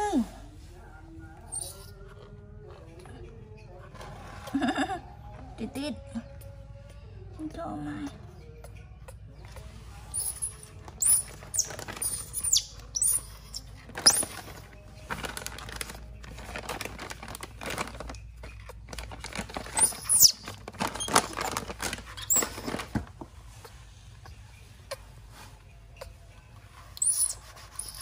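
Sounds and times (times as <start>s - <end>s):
baby monkey squealing: 1.5s - 1.9s, 10.1s - 14.4s, 19.7s - 22.6s, 26.9s - 28.0s.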